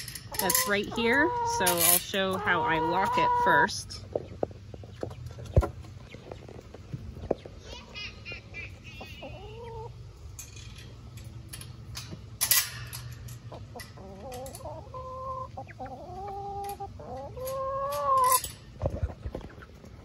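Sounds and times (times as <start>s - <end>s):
hens calling: 0.0s - 10.3s, 13.4s - 20.0s
metallic clink of bolt: 10.4s - 13.4s.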